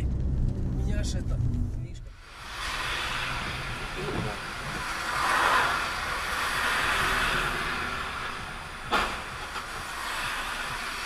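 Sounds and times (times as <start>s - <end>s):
tyres hissing on wet road: 2.2s - 11.0s
sharp thump: 8.9s - 9.5s.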